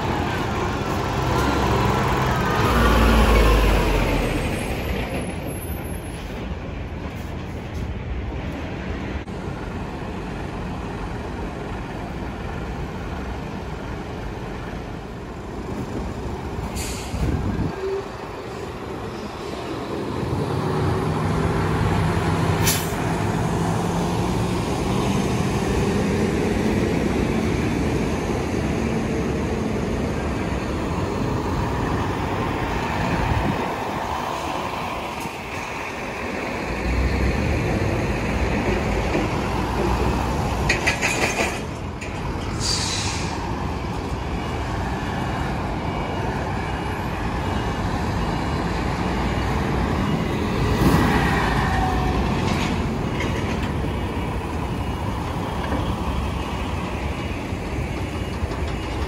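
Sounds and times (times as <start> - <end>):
trucks idling: 0.0 - 5.6, 6.2 - 59.0
truck engine hum: 0.0 - 59.0
truck passing: 0.0 - 59.0
air-brake hisses: 16.7 - 17.3, 42.5 - 43.4.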